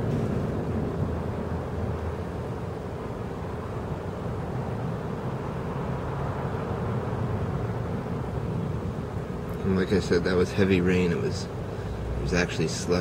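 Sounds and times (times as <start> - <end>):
distant traffic rumble: 0.0 - 13.0.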